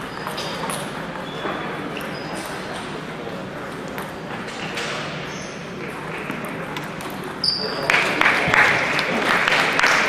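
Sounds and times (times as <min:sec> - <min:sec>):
murmur of voices: 0:00.0 - 0:10.0
table tennis balls clicking: 0:05.8 - 0:09.3.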